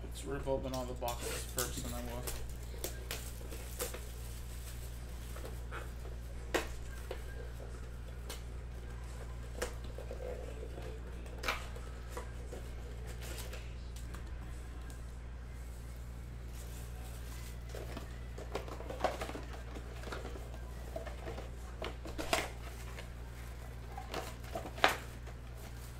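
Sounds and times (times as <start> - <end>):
steady low hum: 0.0 - 25.9
plastic wrap crinkling: 0.7 - 8.3
cellophane rustling: 1.0 - 7.6.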